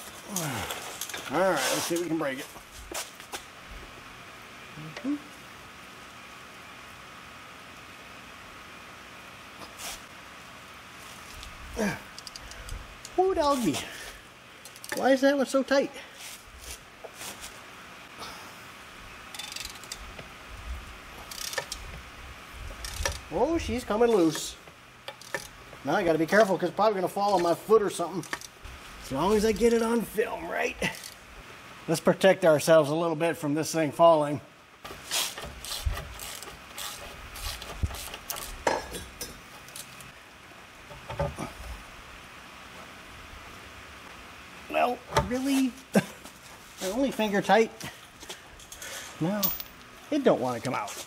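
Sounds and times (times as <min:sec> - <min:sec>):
socket wrench ratchet clicking: 0:12.2 - 0:12.7, 0:19.3 - 0:20.0, 0:21.3 - 0:21.8, 0:22.8 - 0:23.2, 0:25.1 - 0:25.6
metal tools clinking: 0:48.6 - 0:49.9.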